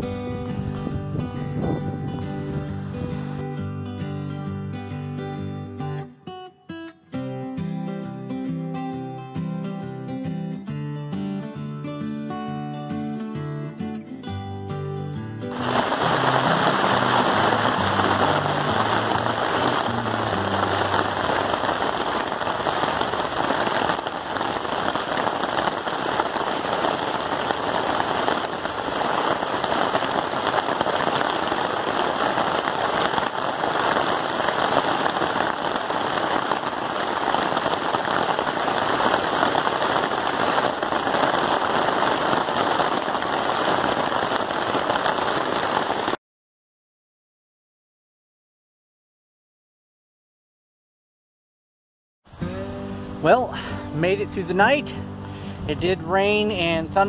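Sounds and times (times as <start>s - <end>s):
rain on a tarp: 15.4s - 46.2s, 52.3s - 57.0s.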